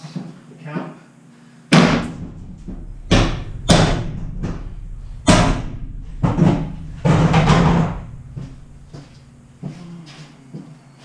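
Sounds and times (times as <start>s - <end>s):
metal bangs and clangs echoing: 1.8s - 10.0s
steady low hum: 1.8s - 10.5s.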